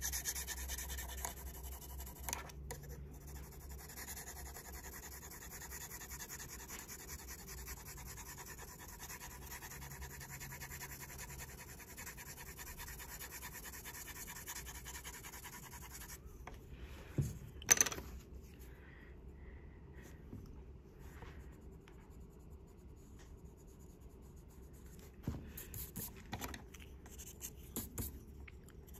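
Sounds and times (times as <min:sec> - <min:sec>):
pencil scratching on paper: 0:00.0 - 0:16.2, 0:27.1 - 0:28.2.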